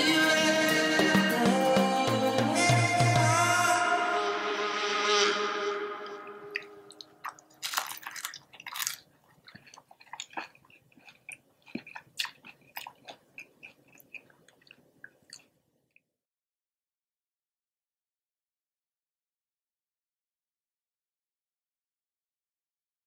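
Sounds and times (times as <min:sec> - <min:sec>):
background music: 0:00.0 - 0:06.9
crunchy chewing: 0:06.6 - 0:15.6
crunchy bite into spring roll: 0:07.2 - 0:14.2.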